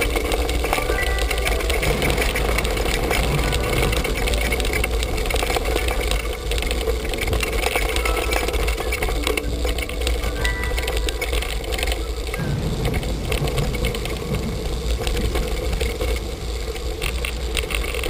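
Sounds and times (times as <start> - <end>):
faint held music notes: 0.0 - 18.0
steady rushing noise: 0.0 - 18.0.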